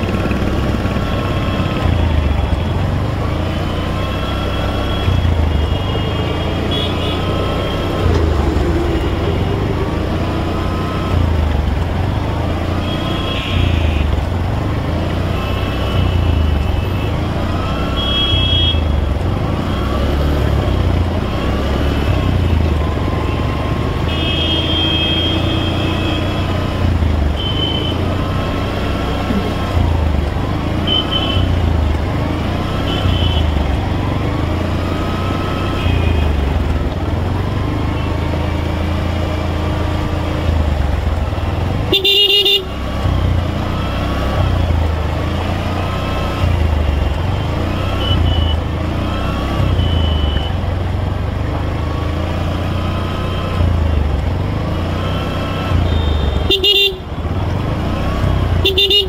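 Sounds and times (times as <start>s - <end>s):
motorcycle engine rumble: 0.0s - 59.0s
vehicle horns tooting: 3.9s - 8.1s, 12.7s - 14.1s, 15.3s - 19.1s, 24.0s - 26.5s, 30.8s - 31.6s, 41.9s - 42.8s, 55.7s - 57.1s, 58.6s - 59.0s.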